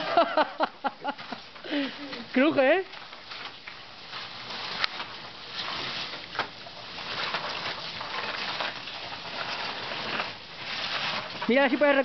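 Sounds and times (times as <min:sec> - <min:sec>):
ice creaking: 0:01.6 - 0:12.0
wetsuit scraping on ice: 0:03.3 - 0:12.0.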